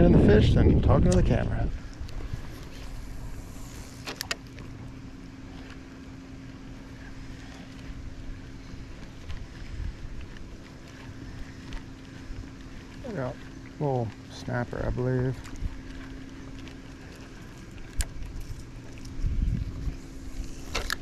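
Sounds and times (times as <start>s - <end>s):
wind noise on microphone: 0.0s - 3.9s, 18.0s - 21.0s
boat motor humming: 0.0s - 21.0s.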